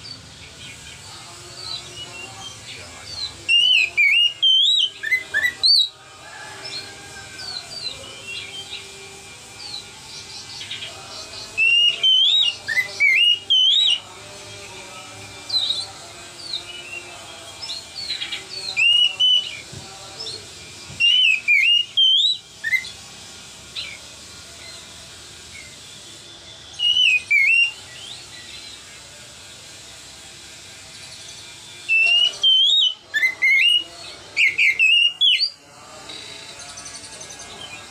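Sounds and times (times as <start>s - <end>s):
bird whistled song: 0.0s - 6.0s, 6.6s - 8.9s, 9.5s - 14.1s, 16.5s - 19.8s, 20.8s - 23.0s, 25.4s - 28.9s, 31.0s - 35.6s.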